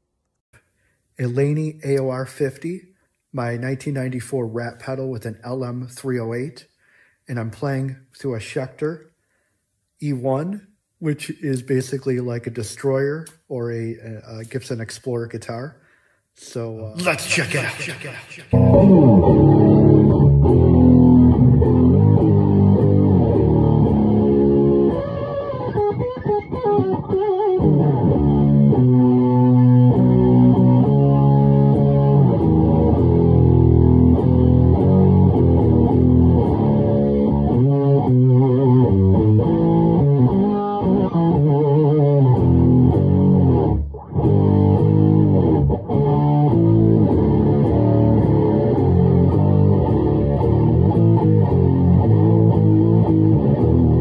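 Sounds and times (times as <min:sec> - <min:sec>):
distorted electric guitar riffs: 0:17.0 - 0:54.0.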